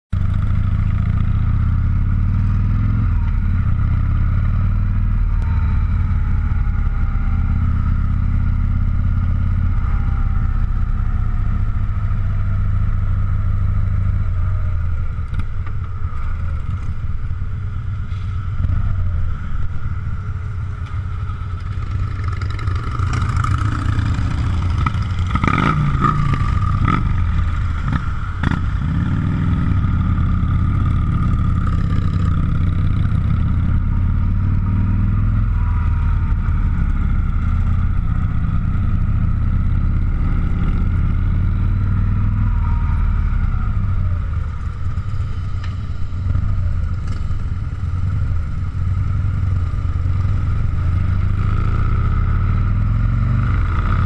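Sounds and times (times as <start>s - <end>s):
motorcycle engine running: 0.1s - 54.0s.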